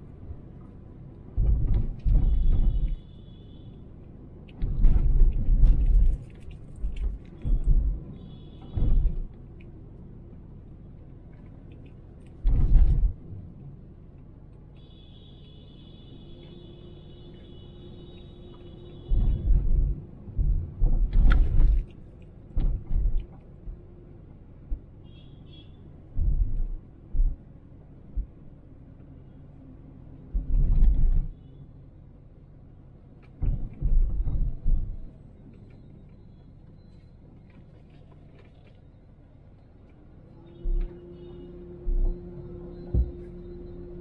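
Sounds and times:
road rumble inside car: 0:00.0 - 0:44.0
loud low thumps and bumps: 0:01.4 - 0:02.9, 0:19.1 - 0:21.8, 0:26.1 - 0:27.4, 0:42.9 - 0:43.5.

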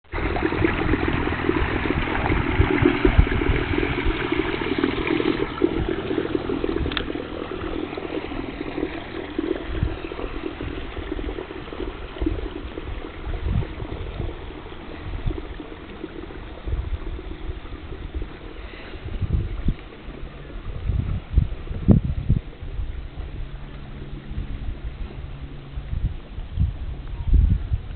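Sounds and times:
lake water washing: 0:00.0 - 0:27.9
wind buffeting microphone: 0:00.1 - 0:27.9
electric canoe motor: 0:00.2 - 0:09.2.

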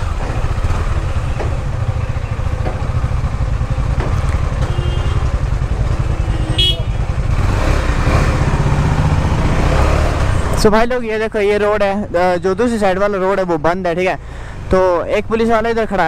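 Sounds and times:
motorcycle engine chugging: 0:00.0 - 0:09.5.

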